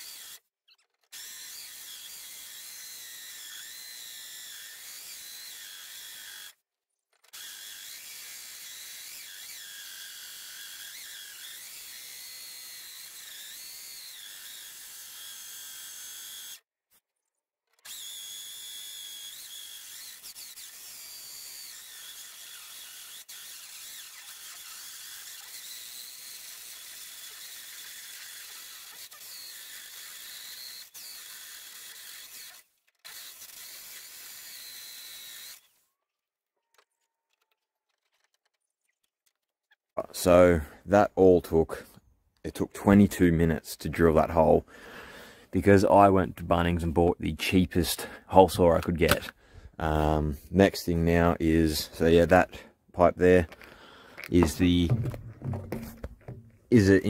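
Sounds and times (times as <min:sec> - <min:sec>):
drill hole saw cutting metal: 0:00.0 - 0:16.7, 0:17.7 - 0:35.8, 0:53.2 - 0:57.0.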